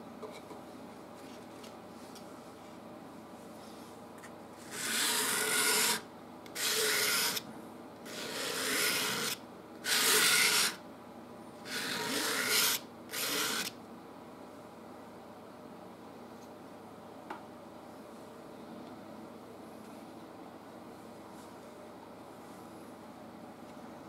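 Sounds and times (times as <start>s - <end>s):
palette knife scraping paint on canvas: 4.6s - 6.0s, 6.6s - 7.4s, 8.1s - 10.8s, 11.7s - 13.7s.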